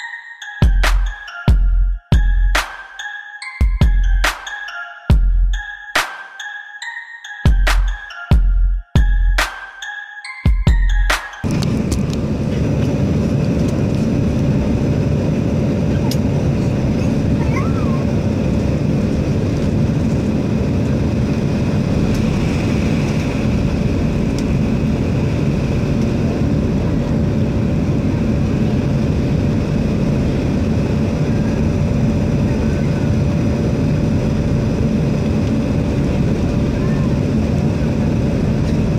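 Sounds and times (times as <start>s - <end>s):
constant cabin hum: 10.8s - 38.9s
airliner engine rumble: 11.4s - 38.9s.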